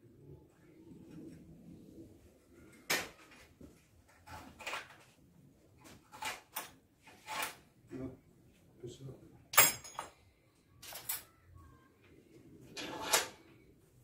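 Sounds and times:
metal tools scraping and clicking: 9.6s - 10.2s.

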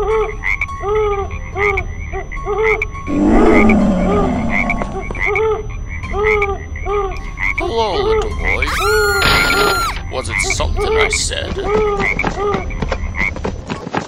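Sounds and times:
frogs croaking: 0.0s - 13.5s
falling tone sweep: 3.1s - 5.2s.

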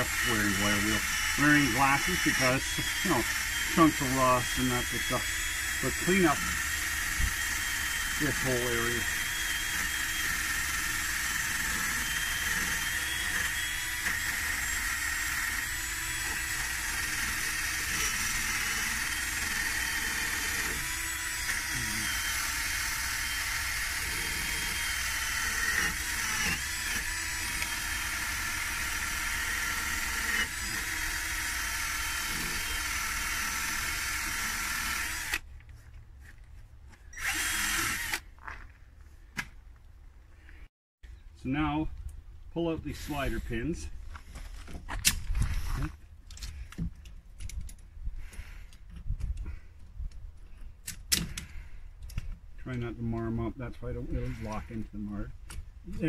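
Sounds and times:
drill with wire brush grinding: 0.0s - 35.5s, 37.1s - 38.3s, 42.9s - 43.9s, 45.2s - 46.0s, 52.7s - 55.3s.

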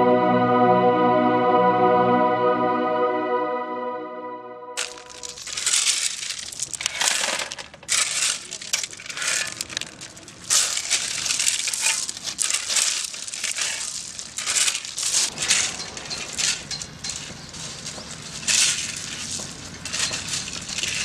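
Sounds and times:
crunching crackling noise: 4.8s - 21.0s.

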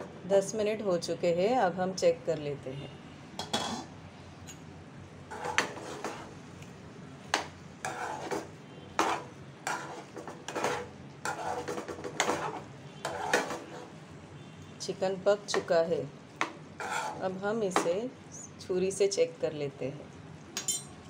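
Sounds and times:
spatula scraping a pan: 5.3s - 6.4s, 7.8s - 14.0s, 16.8s - 17.4s.

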